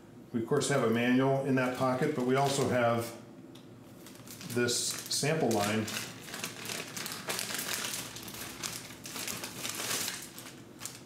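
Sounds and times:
plastic bag crinkling: 1.6 - 3.1, 3.9 - 11.0.

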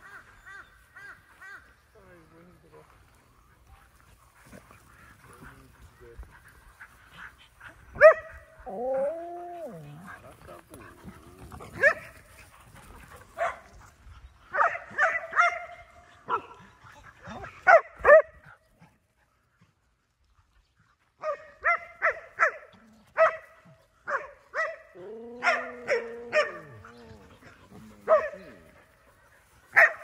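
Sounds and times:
dog barking: 8.0 - 8.4, 11.8 - 12.1, 13.4 - 13.7, 14.5 - 16.6, 17.6 - 18.4, 21.2 - 23.5, 24.1 - 26.8, 28.0 - 28.4, 29.7 - 30.0
dog drawn-out low call: 24.7 - 28.8.

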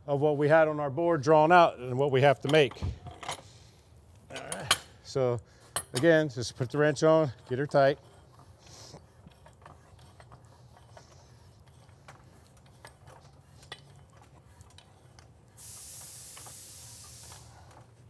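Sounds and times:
steady hiss: 15.5 - 18.0.

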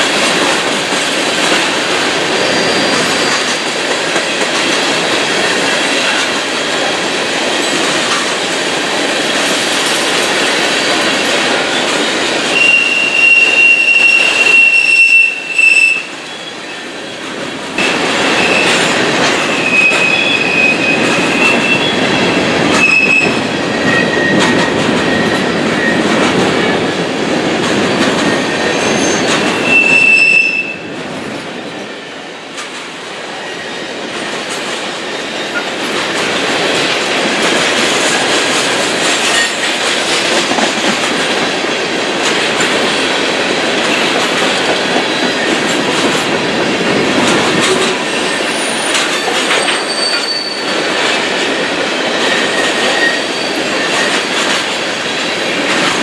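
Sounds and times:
freight train rumbling on rails: 0.0 - 56.0
high-pitched wheel squeal: 12.6 - 16.9, 22.8 - 24.5, 28.3 - 30.8, 48.0 - 50.8, 52.3 - 54.2.

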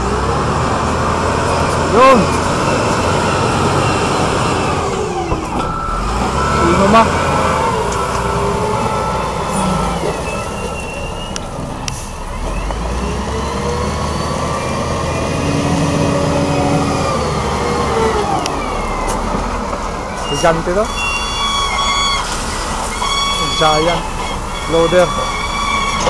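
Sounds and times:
diesel engine under load: 0.0 - 26.0.

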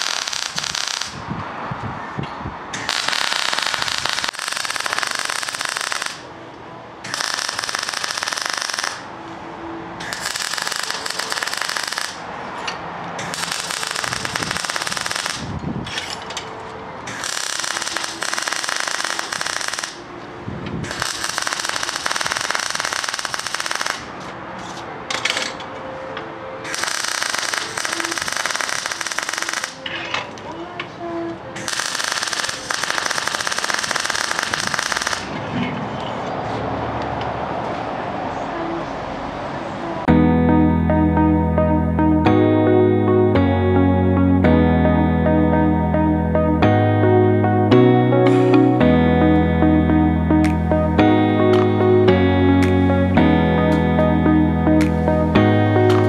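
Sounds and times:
welding arc crackling: 0.0 - 1.3, 2.9 - 6.3, 7.1 - 9.1, 10.1 - 12.3, 13.3 - 15.5, 17.1 - 20.1, 20.9 - 24.2, 26.7 - 29.8, 31.6 - 35.4.

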